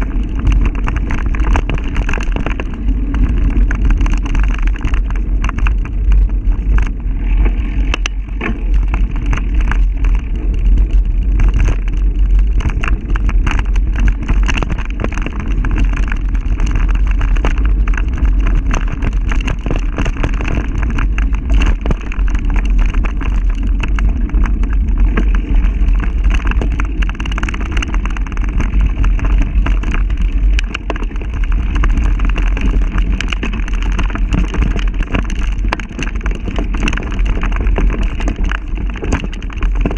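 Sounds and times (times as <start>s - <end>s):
camera rattles and knocks: 0.0s - 39.9s
wind rumble on microphone: 0.0s - 39.9s.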